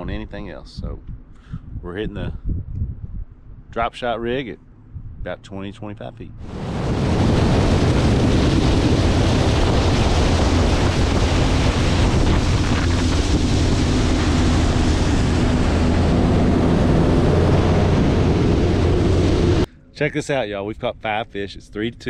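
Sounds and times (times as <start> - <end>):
wind buffeting microphone: 0.0 - 5.4, 6.3 - 19.7
water spraying past hull: 6.4 - 19.7
outboard motor running: 6.7 - 19.7.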